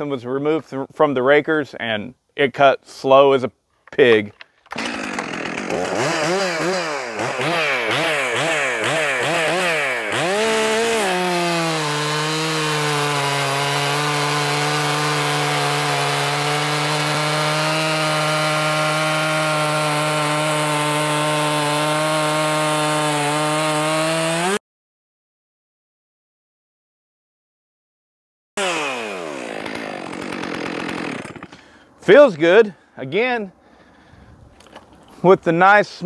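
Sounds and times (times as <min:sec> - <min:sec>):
chainsaw cutting through log: 0:04.6 - 0:24.6, 0:28.6 - 0:31.8
chainsaw revving: 0:04.7 - 0:24.6, 0:28.6 - 0:31.8.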